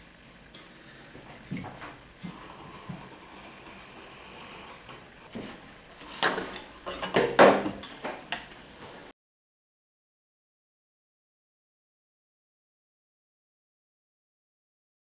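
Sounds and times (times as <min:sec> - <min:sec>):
tools scraping and clattering on wood: 0:01.2 - 0:09.1.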